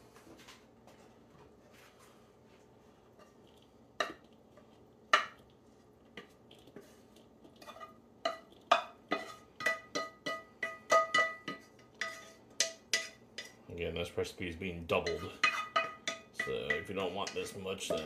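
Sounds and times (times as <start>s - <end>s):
wooden spoon knocking on frying pan: 8.3s - 13.5s, 15.1s - 18.0s.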